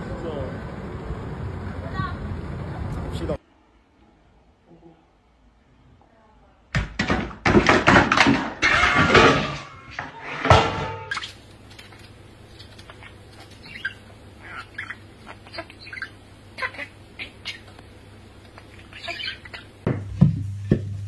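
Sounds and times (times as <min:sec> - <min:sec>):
loud knocks: 0:06.7 - 0:09.6
budgerigar chirping: 0:12.6 - 0:17.8, 0:18.5 - 0:19.8.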